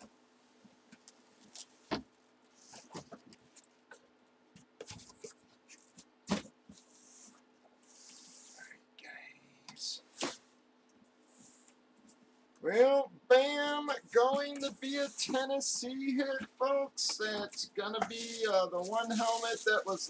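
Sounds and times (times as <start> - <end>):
cardboard knocks and thumps: 1.9 - 2.1, 6.3 - 6.6
paper rustling: 13.6 - 16.5, 17.1 - 20.0.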